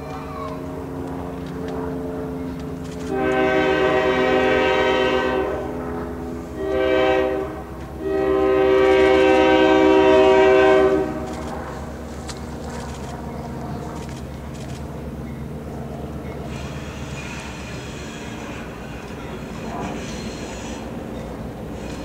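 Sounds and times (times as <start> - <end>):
locomotive air horn blasts: 3.0 - 5.9, 6.5 - 11.3.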